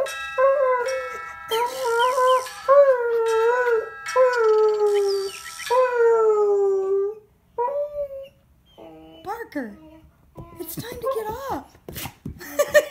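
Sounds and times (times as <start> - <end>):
dog howling: 0.8 - 7.2.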